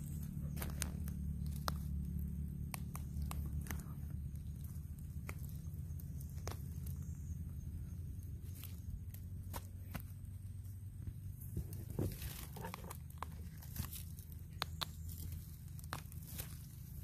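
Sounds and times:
footsteps in dry leaves: 0:00.0 - 0:02.1, 0:11.3 - 0:17.0.

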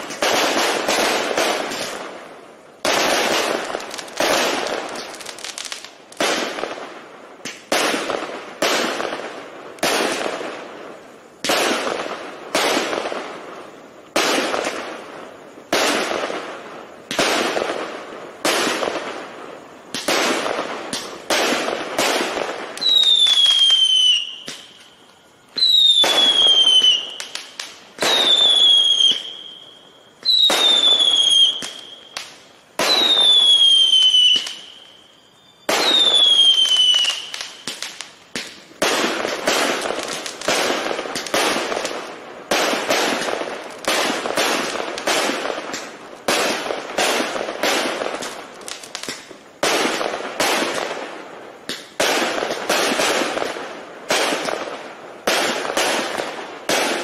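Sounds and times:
whistling firework shots: 0:00.0 - 0:57.0.

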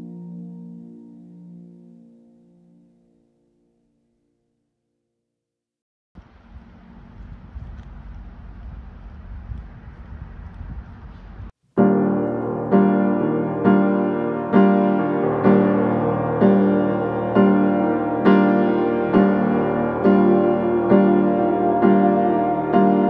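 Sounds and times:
slow piano chords: 0:00.0 - 0:04.3, 0:11.7 - 0:23.0.

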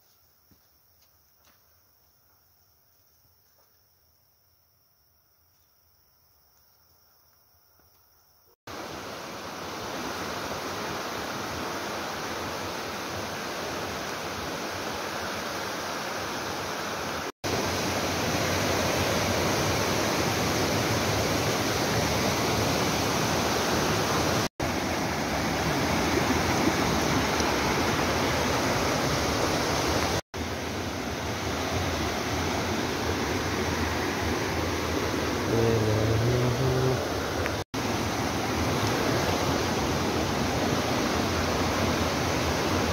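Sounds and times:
water flowing over rocks: 0:08.7 - 0:42.9.

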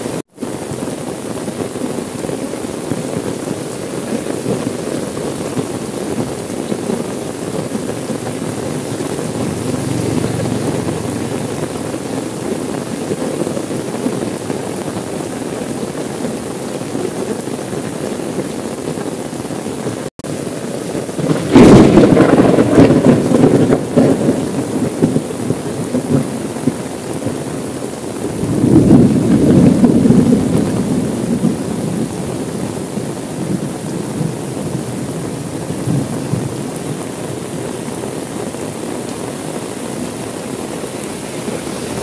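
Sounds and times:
heavy rain on car roof: 0:00.0 - 0:42.0
thunder clap and rumble: 0:04.0 - 0:15.3, 0:21.0 - 0:37.5.

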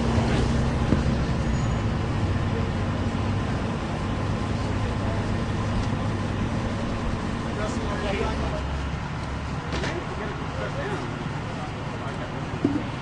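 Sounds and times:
low vehicle drone: 0:00.0 - 0:13.0.

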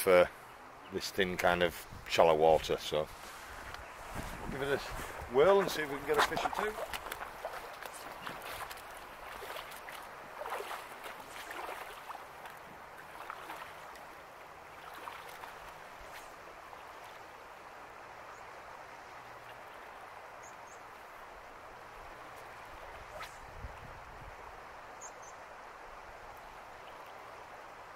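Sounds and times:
shallow river water flowing: 0:00.0 - 0:27.9
wading steps splashing: 0:02.9 - 0:17.3.

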